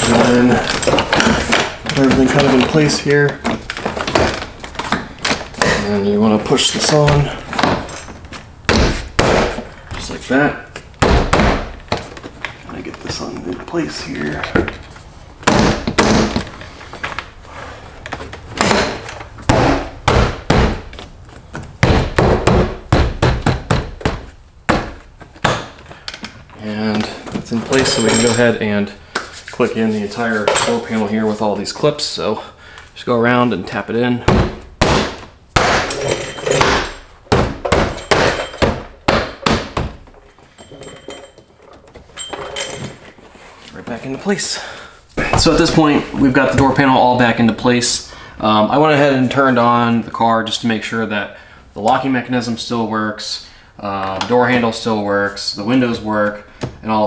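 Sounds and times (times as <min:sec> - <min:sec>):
door panel knocks and thumps: 0:08.6 - 0:09.7, 0:11.0 - 0:12.2, 0:15.4 - 0:16.5, 0:18.5 - 0:25.8, 0:34.3 - 0:36.0, 0:36.6 - 0:40.2
hand thumping door panel: 0:18.6 - 0:25.7.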